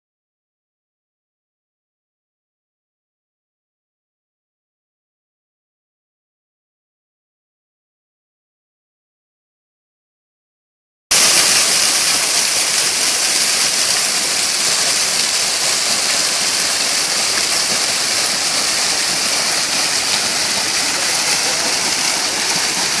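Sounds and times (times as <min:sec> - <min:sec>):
waterfall splashing onto rocks: 0:11.1 - 0:23.0.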